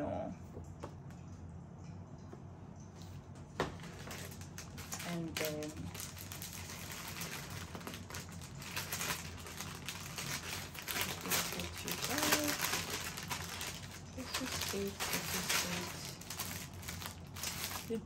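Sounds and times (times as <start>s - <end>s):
wrapping paper rustling: 3.6s - 18.0s.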